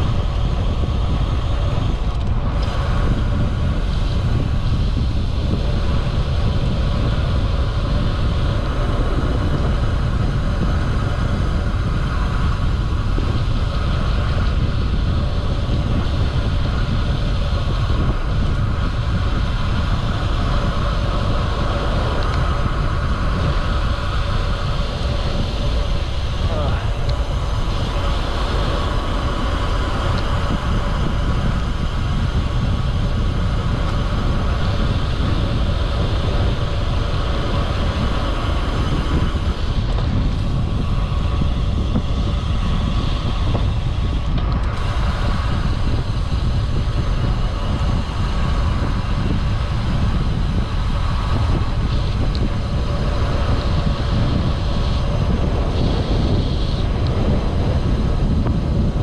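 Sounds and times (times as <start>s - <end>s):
bike road noise: 0.0s - 59.0s
wind rumble on microphone: 0.0s - 59.0s.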